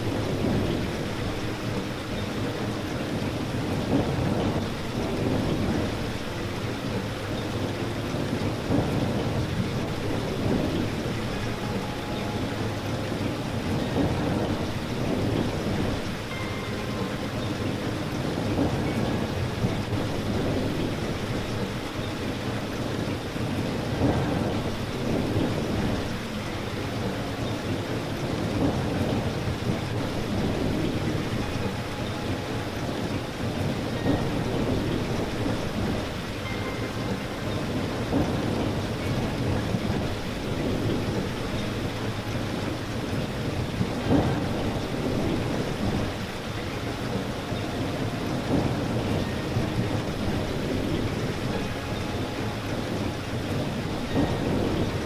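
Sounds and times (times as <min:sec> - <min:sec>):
loud raindrops landing: 0:00.0 - 0:55.0
steady rain falling: 0:00.0 - 0:55.0.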